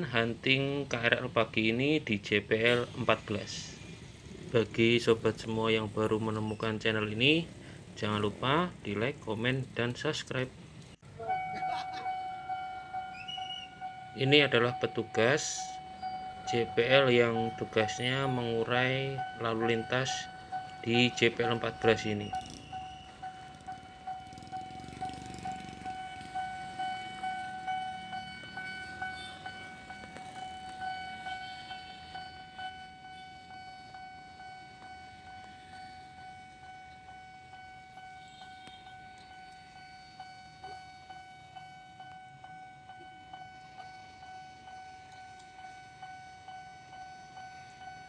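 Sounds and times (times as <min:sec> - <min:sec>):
level crossing warning bell: 0:00.0 - 0:48.0.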